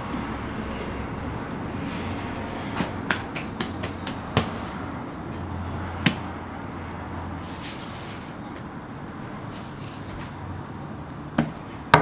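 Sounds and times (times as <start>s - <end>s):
steady low hum: 0.0s - 12.0s
dough slapping: 2.8s - 4.8s, 6.0s - 6.3s.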